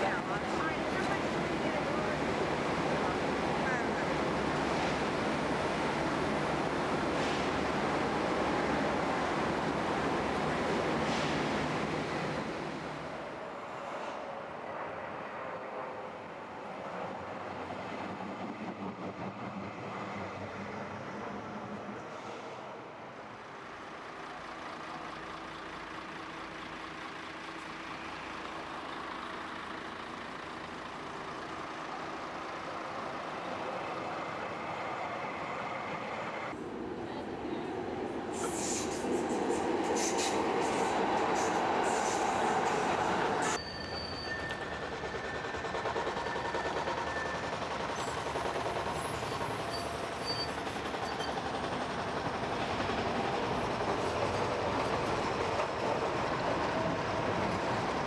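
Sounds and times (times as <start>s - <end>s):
tram wheels clattering on rails: 37.7s - 58.0s
wheel squeal: 43.4s - 48.3s, 49.0s - 51.6s.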